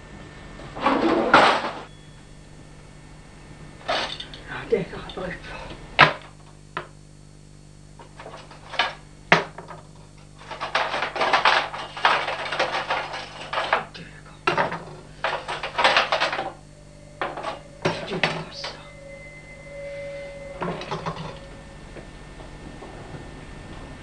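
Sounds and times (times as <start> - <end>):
steady low hum: 0.0 - 24.0
objects clattering: 3.8 - 4.4, 10.4 - 13.9, 14.5 - 21.7.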